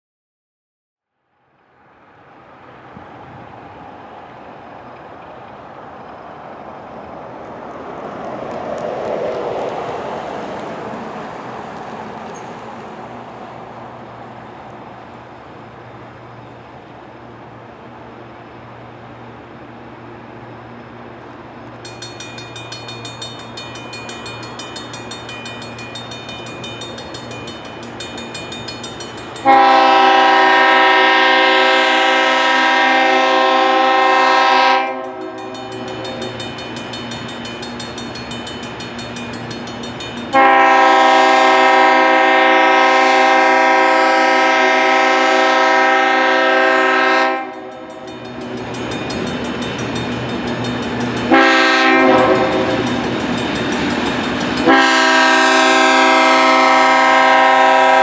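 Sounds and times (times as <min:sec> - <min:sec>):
diesel locomotive approaching: 0:01.3 - 0:58.0
crossing bell ringing: 0:21.7 - 0:31.5, 0:33.8 - 0:42.2, 0:46.3 - 0:58.0
locomotive air horn blasts: 0:29.4 - 0:36.4, 0:40.3 - 0:48.0, 0:51.3 - 0:52.8, 0:54.6 - 0:58.0.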